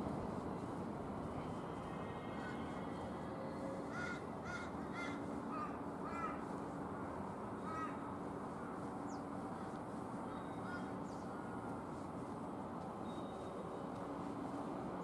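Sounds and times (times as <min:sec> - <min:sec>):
outdoor background hum: 0:00.0 - 0:15.0
crow cawing: 0:03.9 - 0:06.4, 0:07.7 - 0:08.0.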